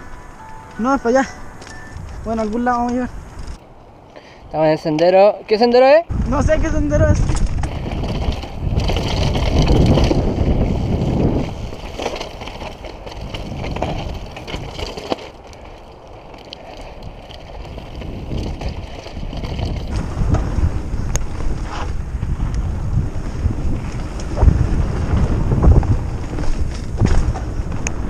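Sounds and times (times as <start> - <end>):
wind buffeting microphone: 0.0 - 4.1, 6.0 - 28.0
bike tyres rumbling on rocky trail: 6.1 - 28.0
bike clicks and knocks: 7.2 - 22.6, 23.7 - 28.0.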